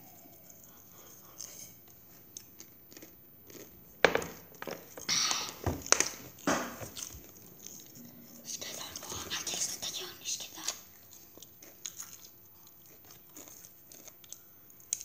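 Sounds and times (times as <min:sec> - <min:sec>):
tortilla chips crunching: 0:11.0 - 0:15.0.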